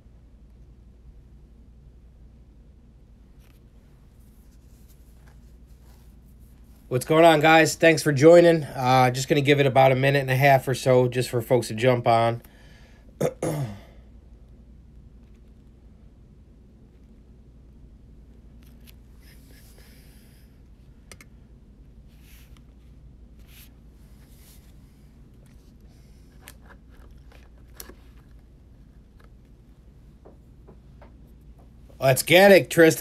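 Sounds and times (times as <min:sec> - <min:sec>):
low steady hum: 0:00.0 - 0:33.0
faint rustling: 0:03.3 - 0:06.9, 0:22.0 - 0:32.0.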